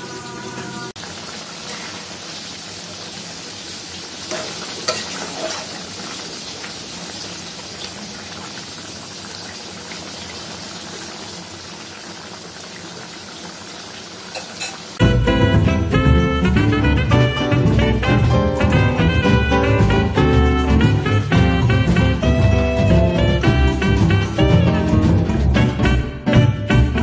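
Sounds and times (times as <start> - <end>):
curry sizzling and bubbling: 0.0 - 27.0
spatula scraping and knocking: 4.3 - 5.8.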